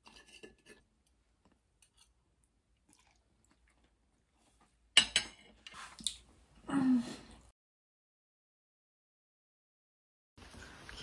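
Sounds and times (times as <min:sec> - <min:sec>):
cutlery scraping a plate: 0:00.0 - 0:00.8
cutlery clinking on a plate: 0:05.0 - 0:05.5.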